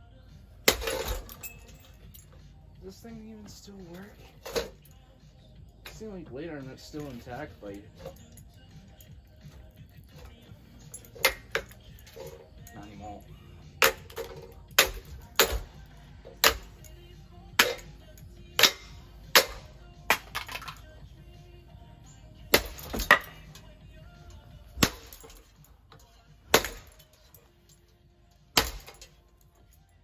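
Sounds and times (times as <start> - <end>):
ceiling fan being smashed: 0.6 - 1.4, 13.8 - 15.8, 17.5 - 17.9, 18.6 - 20.8, 22.5 - 23.6, 24.8 - 25.6, 26.5 - 27.2, 28.5 - 29.2.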